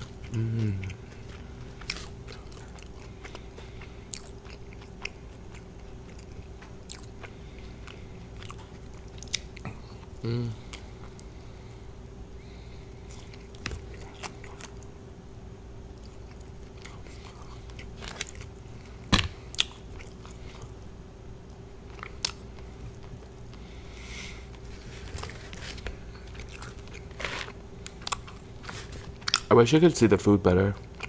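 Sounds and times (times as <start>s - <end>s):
chewing and biting fried chicken: 0.0s - 11.3s, 12.9s - 15.0s, 15.9s - 20.8s, 24.4s - 29.5s
crisp crunches: 24.6s - 29.5s.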